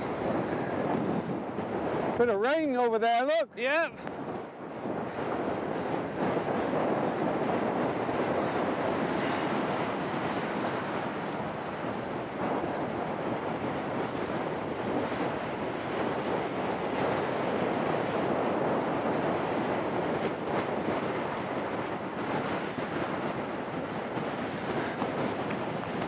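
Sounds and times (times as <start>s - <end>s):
wind blowing across microphone: 0.0s - 26.0s.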